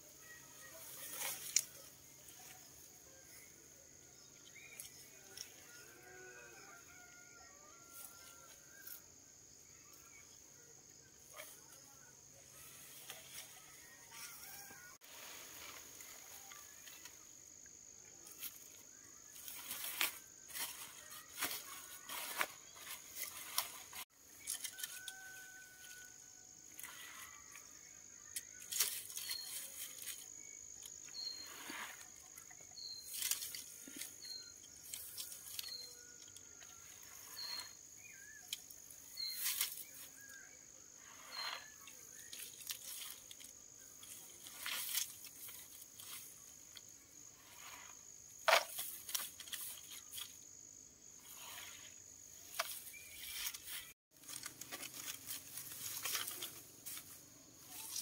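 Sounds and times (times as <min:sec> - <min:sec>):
high insect drone: 0:00.0 - 0:58.0
dry rice stalks rustling: 0:00.5 - 0:03.4, 0:12.6 - 0:17.2, 0:18.3 - 0:25.9, 0:28.6 - 0:30.3, 0:32.9 - 0:36.0, 0:38.5 - 0:40.4, 0:41.0 - 0:46.8, 0:52.4 - 0:58.0.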